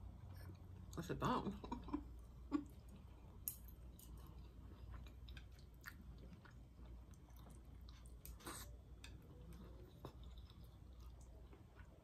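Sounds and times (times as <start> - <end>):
person chewing food: 2.5 - 12.0.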